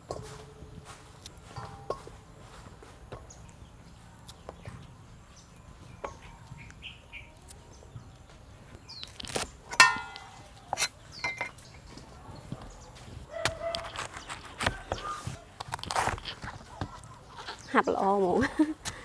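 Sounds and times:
faint bird chirp: 0:03.1 - 0:09.4, 0:10.1 - 0:15.4.

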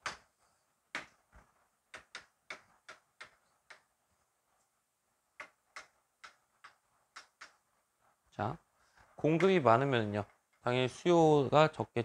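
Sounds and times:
chalk tapping on blackboard: 0:00.0 - 0:04.0, 0:05.3 - 0:07.9, 0:09.2 - 0:10.6.

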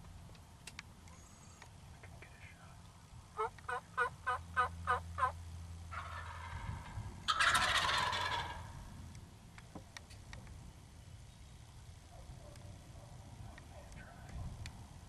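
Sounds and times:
turkey gobbling: 0:03.4 - 0:08.7
turkey yelps: 0:03.4 - 0:08.7.

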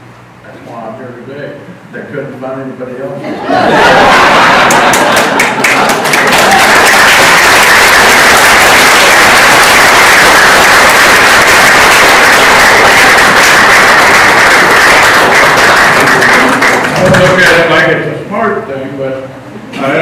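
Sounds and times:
audience applauding: 0:03.8 - 0:18.0.

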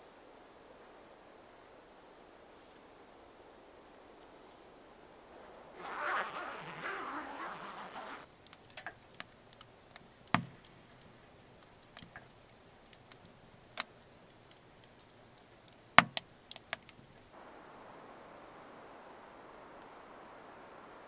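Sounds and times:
burning logs popping: 0:08.0 - 0:17.3
wood fire crackling: 0:08.2 - 0:21.0.

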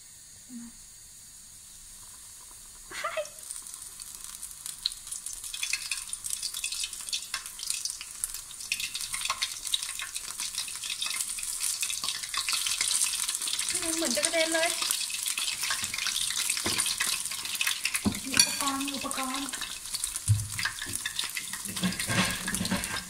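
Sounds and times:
oil sizzling with pops: 0:00.0 - 0:23.0.

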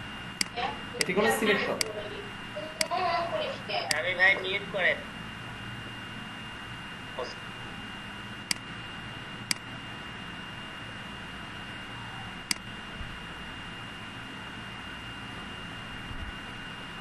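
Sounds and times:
computer mouse clicks: 0:08.5 - 0:08.7, 0:12.5 - 0:12.7.

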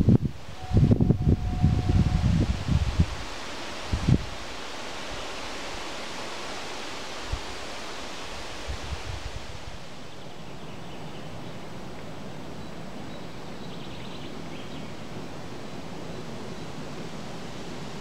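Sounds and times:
wind thumps on microphone: 0:00.0 - 0:03.3, 0:03.9 - 0:04.4
wind rustling trees and reeds: 0:00.0 - 0:18.0.

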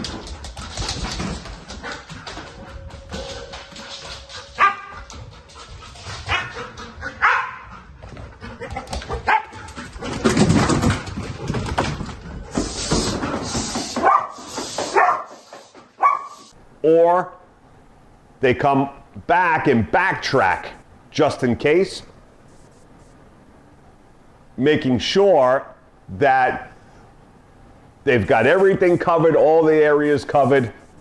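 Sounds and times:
dog barking: 0:04.6 - 0:04.9, 0:07.2 - 0:07.7, 0:09.3 - 0:09.6, 0:14.0 - 0:15.3, 0:16.0 - 0:16.5.

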